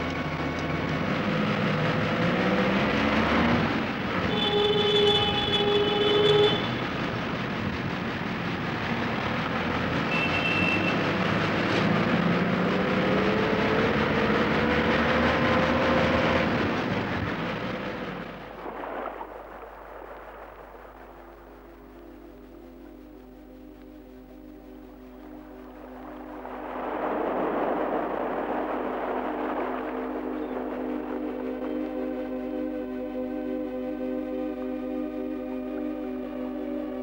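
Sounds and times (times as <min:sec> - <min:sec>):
busy street traffic: 0:00.0 - 0:33.3
engine accelerating: 0:00.0 - 0:37.0
car horn: 0:04.2 - 0:07.0, 0:10.0 - 0:11.2.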